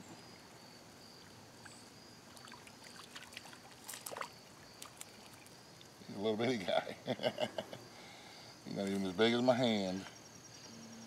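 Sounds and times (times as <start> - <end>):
fish splashing at water surface: 2.3 - 5.5.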